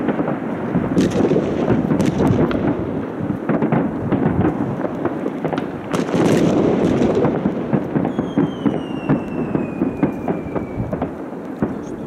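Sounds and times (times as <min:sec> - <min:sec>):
fireworks rumble: 0:00.0 - 0:12.0
sharp fireworks bangs: 0:00.0 - 0:12.0.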